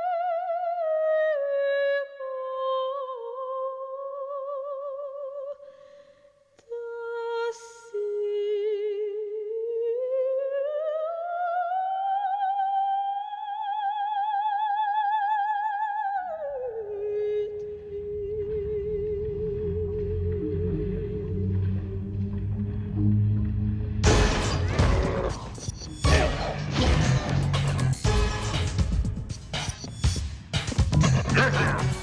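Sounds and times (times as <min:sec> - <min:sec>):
operatic soprano singing: 0:00.0 - 0:05.6, 0:06.6 - 0:23.0.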